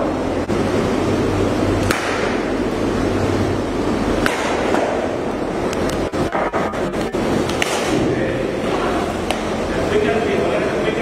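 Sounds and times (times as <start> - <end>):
steady loud background noise: 0.0 - 11.0.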